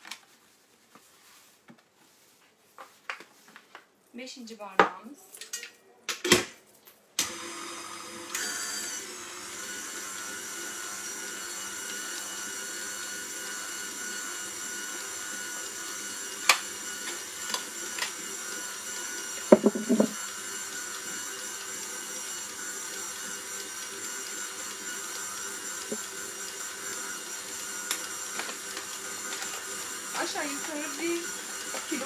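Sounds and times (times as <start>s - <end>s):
stand mixer motor whine: 7.2s - 32.0s
knocks: 19.5s - 20.2s.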